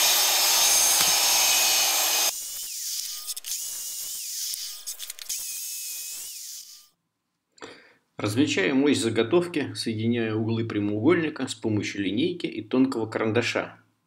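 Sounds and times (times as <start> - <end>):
mitre saw cutting wood: 0.0 - 6.9.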